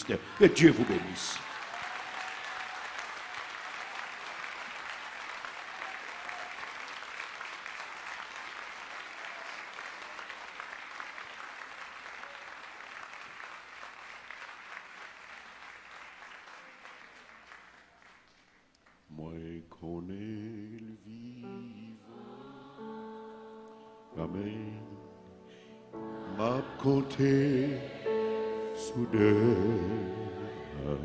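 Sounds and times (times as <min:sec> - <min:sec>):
crowd applauding: 0:00.0 - 0:19.1.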